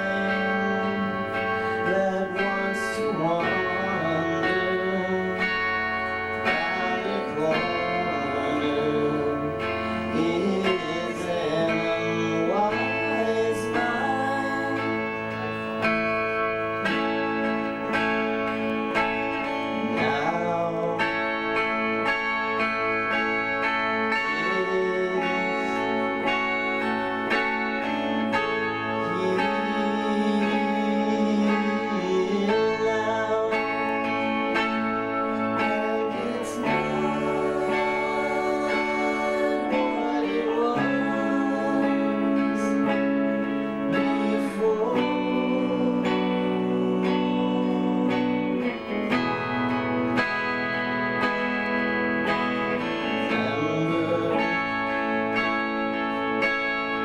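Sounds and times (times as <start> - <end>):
live rock band with strummed guitars: 0.0 - 57.0.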